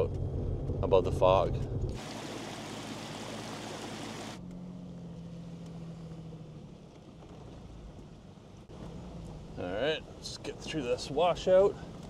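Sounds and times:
car engine humming: 0:00.0 - 0:12.0
creek rushing over rocks: 0:02.0 - 0:04.4.

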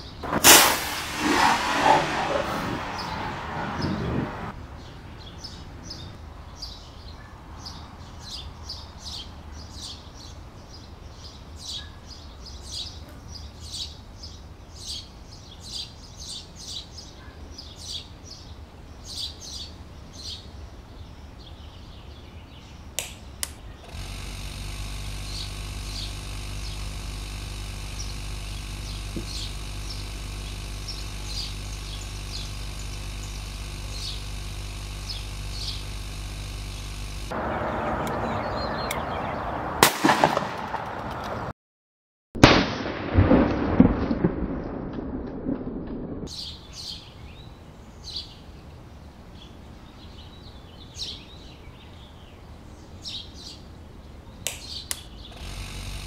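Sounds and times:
air pump humming: 0:00.0 - 0:04.5, 0:23.0 - 0:39.0, 0:54.5 - 0:56.0
birds chirping: 0:00.0 - 0:39.8
sharp clicks: 0:23.0 - 0:37.4, 0:54.5 - 0:56.0.

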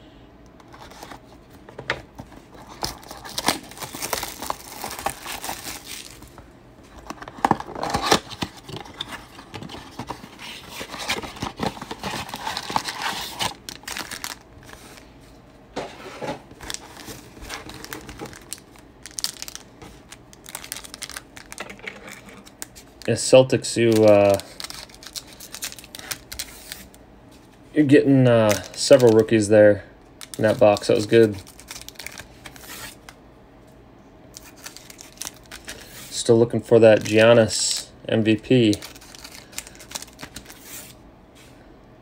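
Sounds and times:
plastic wrap crinkling and tearing: 0:02.6 - 0:06.4, 0:07.0 - 0:15.1, 0:16.5 - 0:27.0, 0:28.4 - 0:29.3, 0:30.2 - 0:33.1, 0:34.4 - 0:36.1, 0:38.6 - 0:41.0.

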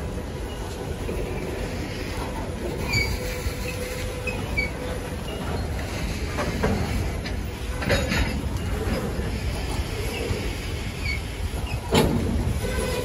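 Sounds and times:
train wheels rumbling on rails: 0:00.0 - 0:13.0
thin squeal and squeaks: 0:02.8 - 0:05.8.

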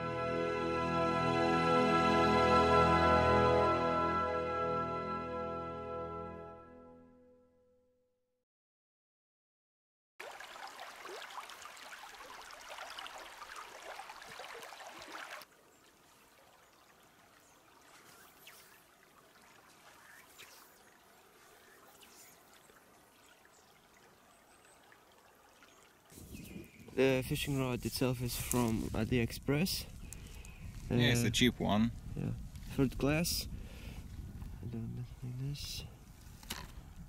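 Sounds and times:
river water trickling and splashing: 0:10.2 - 0:31.0.

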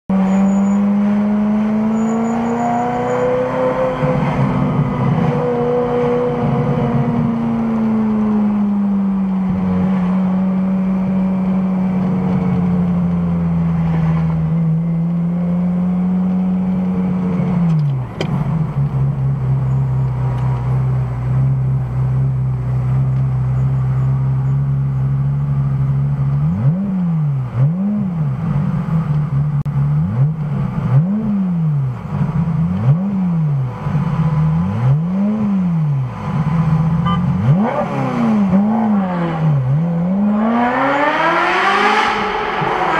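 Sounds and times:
engine revving: 0:00.1 - 0:12.6, 0:26.3 - 0:42.9.

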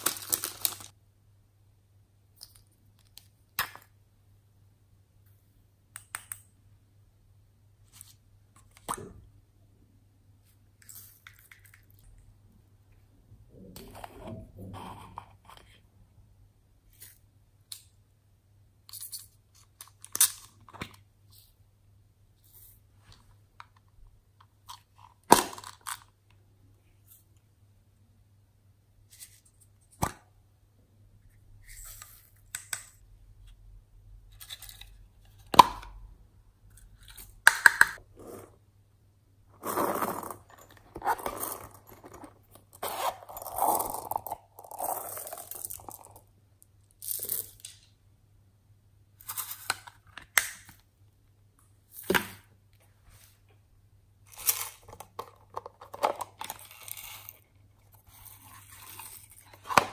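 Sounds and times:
rustling and crinkling: 0:39.5 - 0:44.1.

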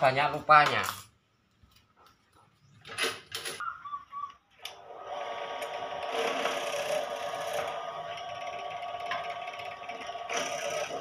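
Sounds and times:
drill press boring into wood: 0:05.2 - 0:11.0.

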